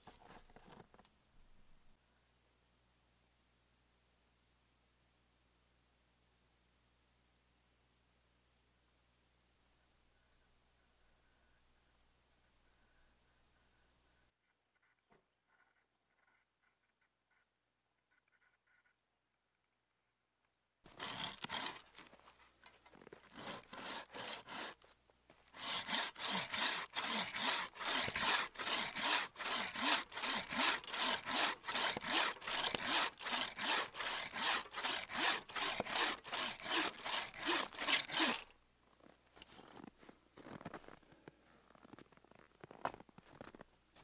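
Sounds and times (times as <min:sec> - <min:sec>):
bow saw cutting wood: 0:20.9 - 0:22.3, 0:23.0 - 0:24.9, 0:25.5 - 0:38.5.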